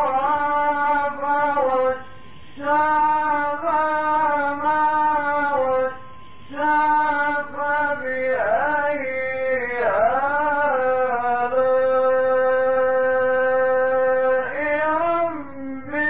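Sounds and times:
man reciting melodically: 0.0s - 16.0s.

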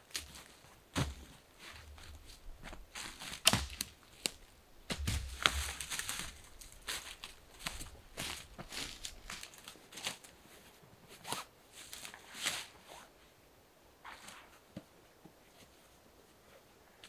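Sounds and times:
footsteps in dry leaves: 0.0s - 10.3s.

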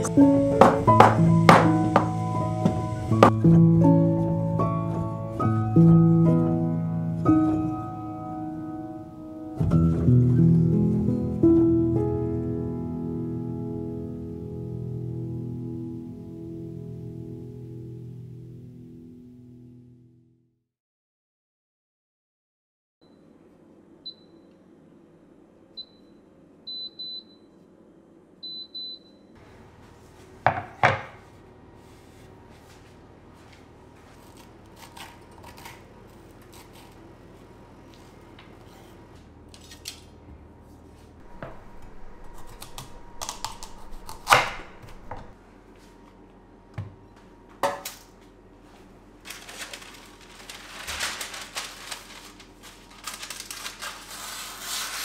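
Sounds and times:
oven control panel beeps: 24.0s - 24.5s, 25.8s - 27.5s, 28.4s - 29.3s
baking paper crinkling: 48.8s - 55.0s.

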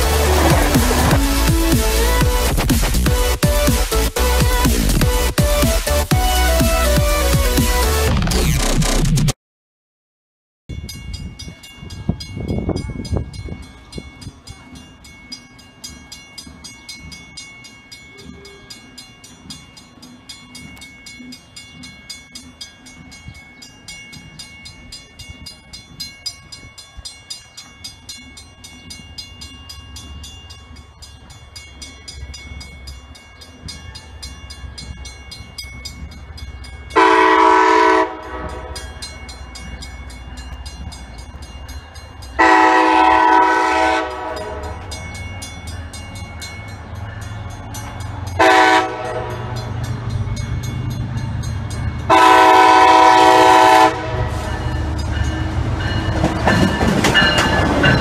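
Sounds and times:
locomotive engine rumble: 0.0s - 8.6s, 10.8s - 58.0s
train horn blasts: 37.0s - 38.8s, 42.4s - 44.8s, 48.4s - 49.7s, 52.1s - 54.5s.

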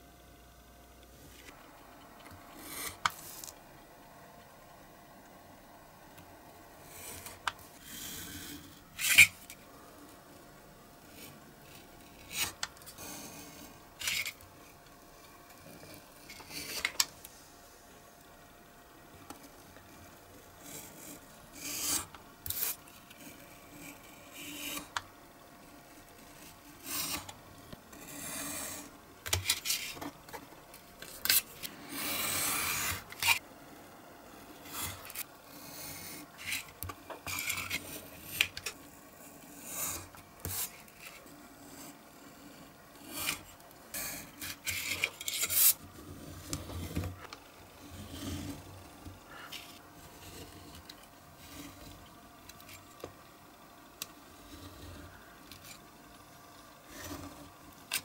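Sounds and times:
knife cutting through paper: 31.0s - 33.4s.

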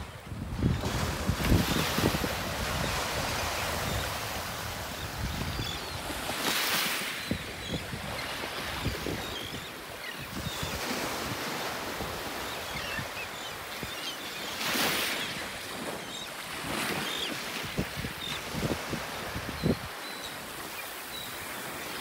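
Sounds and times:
wind buffeting microphone: 0.0s - 6.2s
seabird calls: 0.0s - 22.0s.

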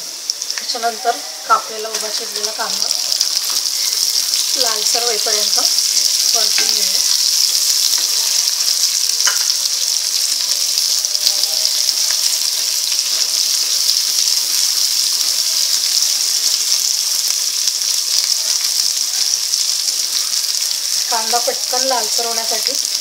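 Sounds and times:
onions sizzling in oil: 0.0s - 23.0s
spatula knocking pan: 6.2s - 8.2s, 8.8s - 9.8s.

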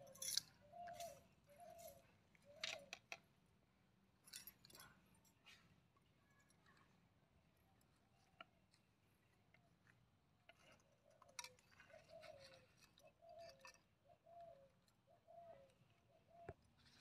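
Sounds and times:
dove cooing: 0.0s - 2.9s, 11.2s - 16.6s.

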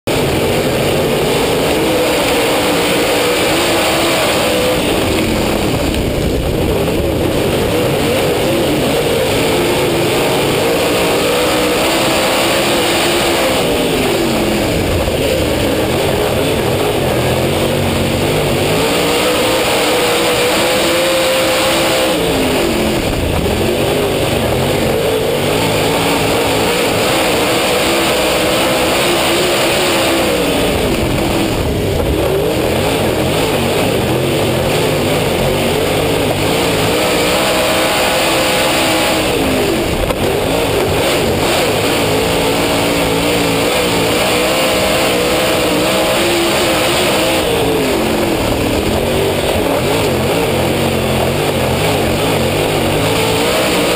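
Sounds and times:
race car engine revving: 0.0s - 53.9s
wind rush: 4.0s - 8.5s, 22.2s - 25.8s.

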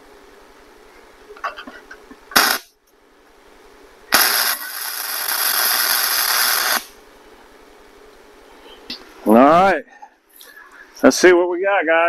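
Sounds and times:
welding arc hiss: 2.3s - 2.8s, 4.1s - 7.0s.

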